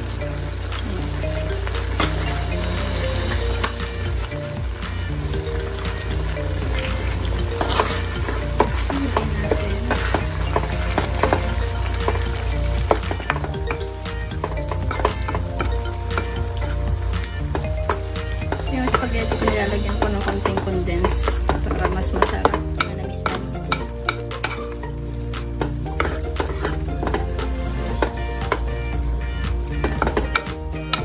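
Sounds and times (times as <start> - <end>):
sauce sizzling in a pan: 0.0 - 31.0
spoon stirring thick sauce: 5.5 - 24.8, 25.5 - 30.5.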